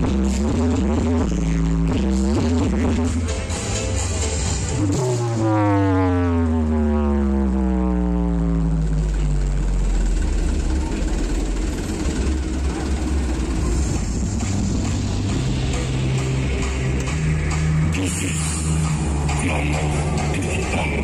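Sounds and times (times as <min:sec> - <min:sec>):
deep electronic tone gliding down: 0:00.0 - 0:21.0
heavy bass drone: 0:00.0 - 0:21.0.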